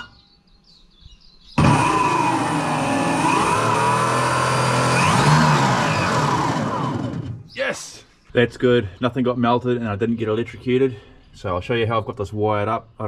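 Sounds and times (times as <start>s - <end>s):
electric motors running: 1.6s - 7.5s.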